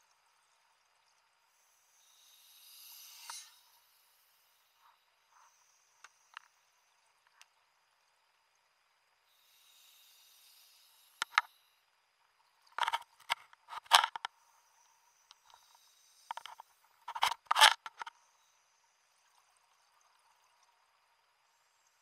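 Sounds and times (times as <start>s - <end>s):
regulator inhalation hiss: 1.5s - 6.4s, 9.3s - 11.8s.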